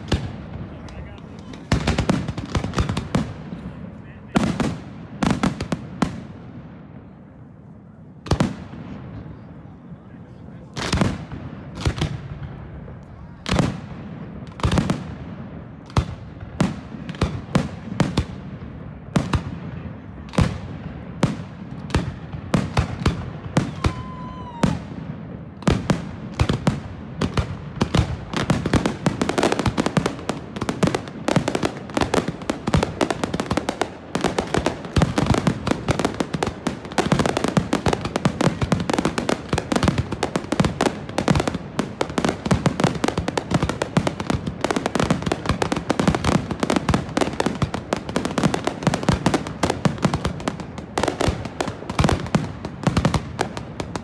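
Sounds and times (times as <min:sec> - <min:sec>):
fireworks booming: 0:00.0 - 0:09.8, 0:10.6 - 0:54.0.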